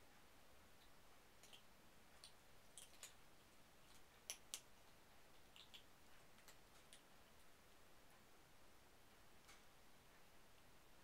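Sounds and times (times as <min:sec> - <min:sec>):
kittens clicking in wire crate: 0:02.2 - 0:03.2.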